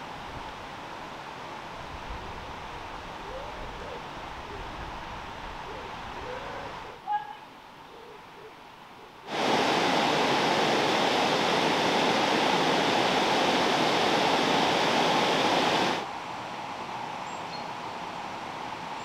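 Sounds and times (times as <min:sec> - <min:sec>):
river water flowing: 0:08.7 - 0:19.0
water rushing over a weir: 0:09.3 - 0:16.1.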